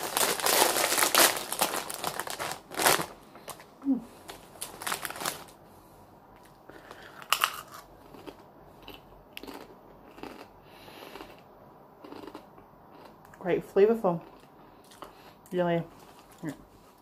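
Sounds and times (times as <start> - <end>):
crisp bag rustling: 0.0 - 5.6
crisps crunching: 0.0 - 5.6, 6.4 - 11.4, 12.0 - 13.2.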